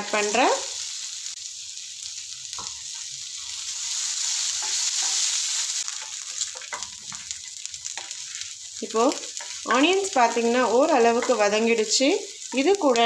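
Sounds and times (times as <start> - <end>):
onion sizzling in hot oil: 0.0 - 13.0.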